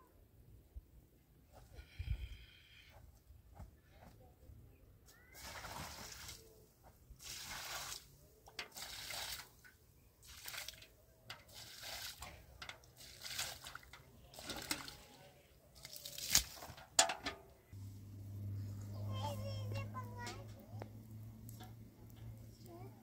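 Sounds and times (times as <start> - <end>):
water splashing onto soil: 5.4 - 6.5, 7.2 - 17.1.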